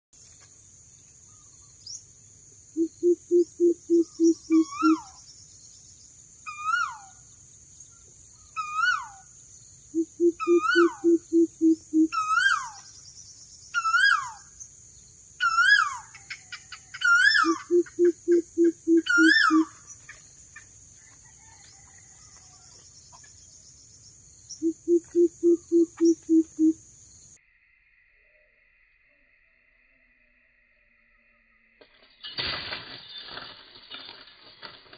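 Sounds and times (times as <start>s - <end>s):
bird deep hooting: 2.8s - 5.1s, 10.0s - 12.7s, 17.1s - 19.7s, 24.6s - 26.8s
bird downward-sweeping call: 2.8s - 5.1s, 10.0s - 12.8s, 17.0s - 19.7s, 24.6s - 26.8s.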